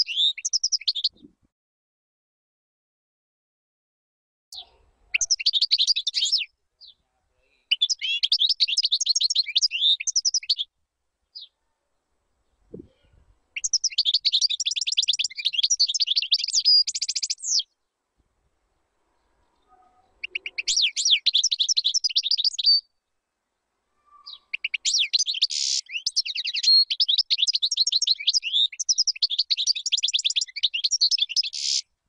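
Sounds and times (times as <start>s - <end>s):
goldfinch twittering song: 0.0s - 1.2s, 4.6s - 7.0s, 7.7s - 10.7s, 13.6s - 17.7s, 20.2s - 22.9s, 24.2s - 31.9s.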